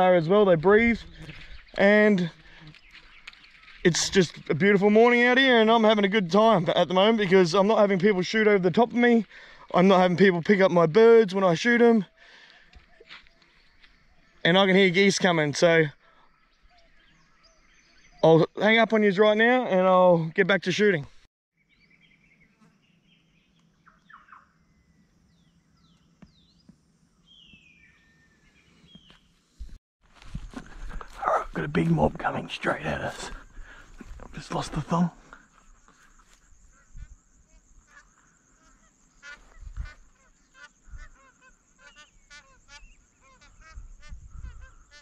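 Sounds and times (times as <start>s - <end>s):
wild birdsong: 0.0s - 45.0s
geese honking: 37.8s - 45.0s.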